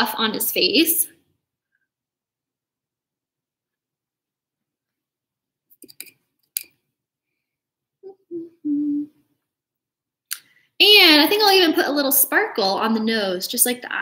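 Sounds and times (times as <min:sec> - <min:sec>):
woman humming: 0:08.0 - 0:09.2.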